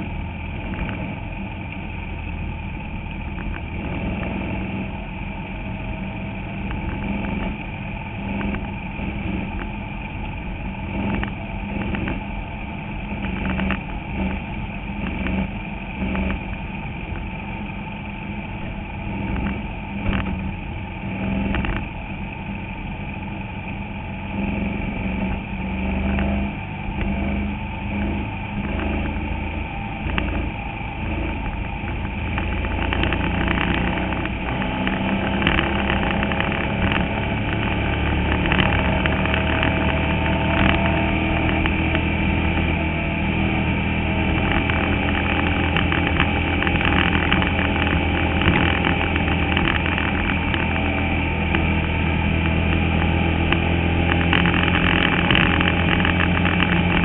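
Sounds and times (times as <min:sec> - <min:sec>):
race car engine running: 0:00.0 - 0:57.0
chassis knocking and rattling: 0:30.0 - 0:42.7, 0:44.2 - 0:50.8.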